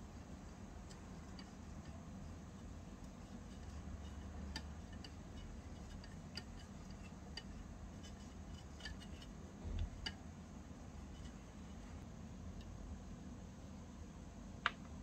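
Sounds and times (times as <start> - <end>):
spoon scraping steel pot: 0.0 - 10.2.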